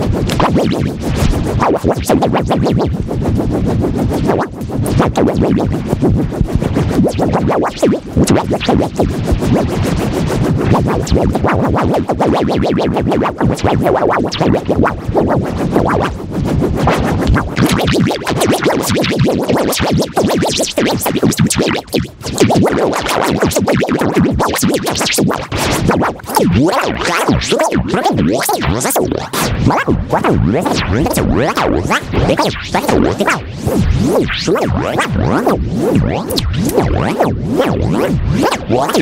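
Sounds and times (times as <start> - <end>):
fast electronic beat: 0.0 - 39.0
synthesizer sliding in pitch: 28.4 - 39.0.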